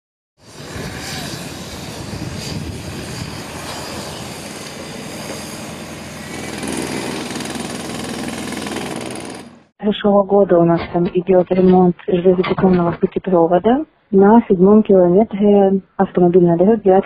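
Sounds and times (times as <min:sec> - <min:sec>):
machinery noise: 0:00.4 - 0:09.7
jackhammer rattling: 0:06.4 - 0:09.6.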